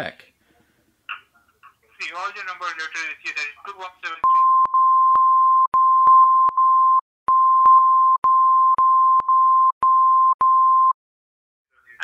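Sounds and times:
high censor bleep tone: 0:04.2 - 0:11.0.

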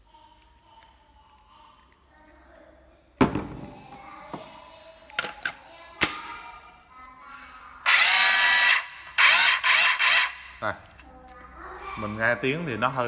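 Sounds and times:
circular saw motor spinning up: 0:07.9 - 0:10.6.

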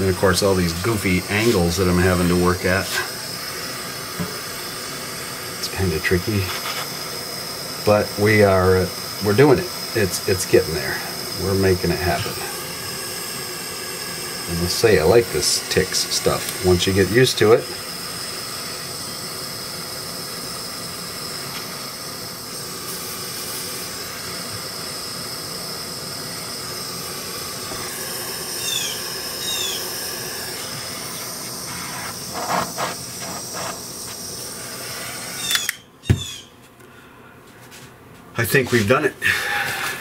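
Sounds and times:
gas torch flame hissing: 0:00.0 - 0:36.4
sharp click: 0:35.4 - 0:36.2.

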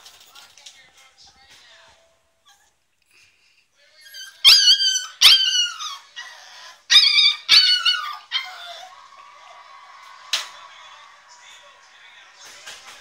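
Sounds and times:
puppy whining: 0:02.4 - 0:02.9, 0:04.0 - 0:09.2
puppy yelping: 0:04.0 - 0:08.9.

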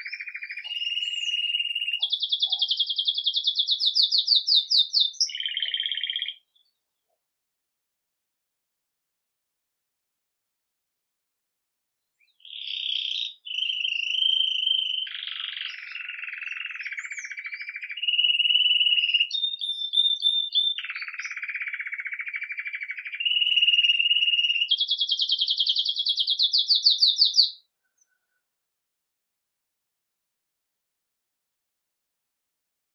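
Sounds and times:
canary singing: 0:00.0 - 0:06.8, 0:12.4 - 0:28.2.

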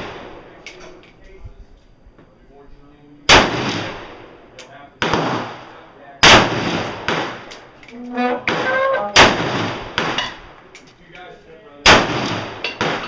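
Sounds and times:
loud rifle shots with echo: 0:03.3 - 0:04.3, 0:05.0 - 0:05.6, 0:06.2 - 0:07.5, 0:09.2 - 0:10.4, 0:11.8 - 0:13.0
quieter gunshots: 0:03.3 - 0:04.3, 0:06.2 - 0:07.5, 0:09.2 - 0:10.2.

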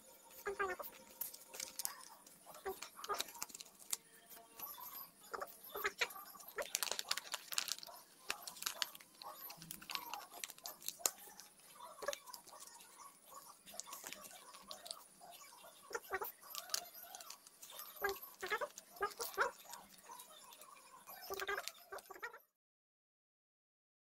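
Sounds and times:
paper crinkling as folded: 0:00.2 - 0:22.3.

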